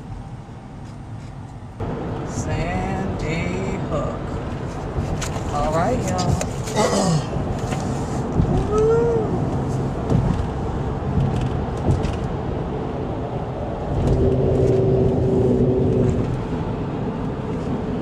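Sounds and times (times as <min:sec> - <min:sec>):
car engine and road rumble: 0:00.0 - 0:18.0
steady low tone: 0:13.0 - 0:17.3.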